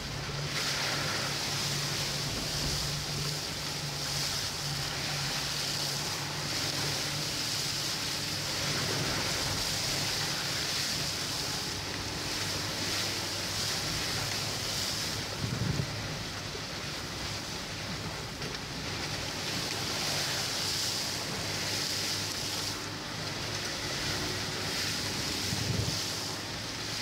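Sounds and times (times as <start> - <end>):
engine hum: 0.0 - 27.0
water spraying from tyres: 0.0 - 27.0.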